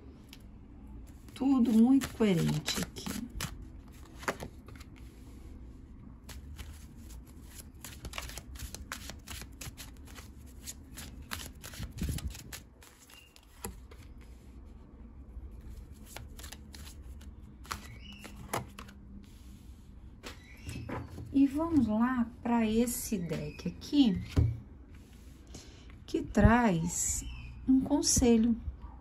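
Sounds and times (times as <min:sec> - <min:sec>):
cards being shuffled: 0:01.1 - 0:05.1, 0:06.2 - 0:14.4, 0:15.7 - 0:19.0.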